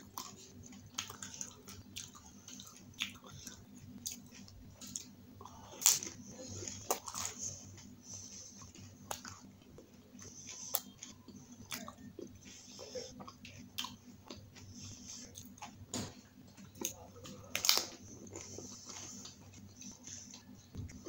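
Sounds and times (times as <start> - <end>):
wet chewing: 0.0 - 15.8.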